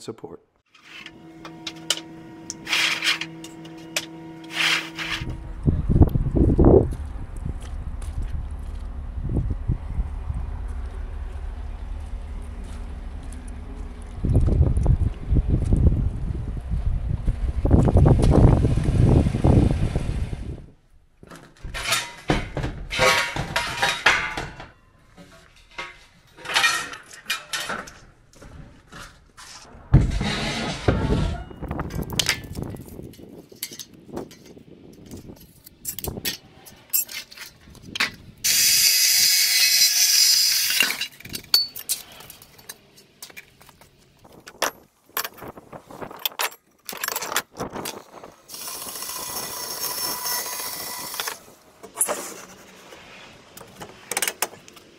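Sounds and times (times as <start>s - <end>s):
steel bars clanking and scraping: 0.7s - 5.4s, 21.3s - 43.5s, 44.4s - 53.0s.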